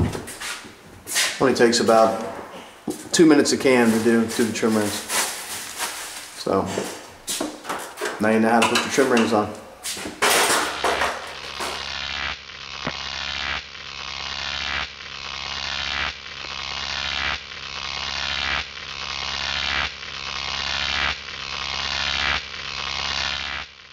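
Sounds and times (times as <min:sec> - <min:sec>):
buzzing electronic hiss: 0:00.0 - 0:23.9.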